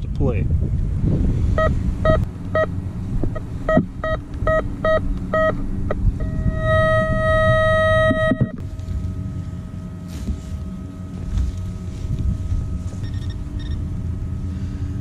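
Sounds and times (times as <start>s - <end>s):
metal detector beeping: 1.6s - 2.7s, 3.3s - 9.2s, 12.8s - 13.9s.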